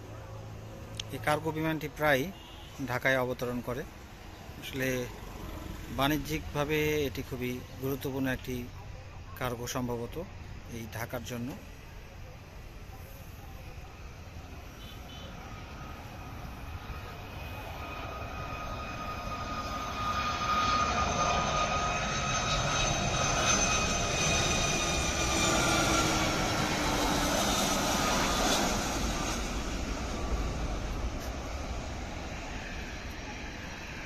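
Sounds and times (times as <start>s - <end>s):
jet engines whining: 13.7s - 34.0s.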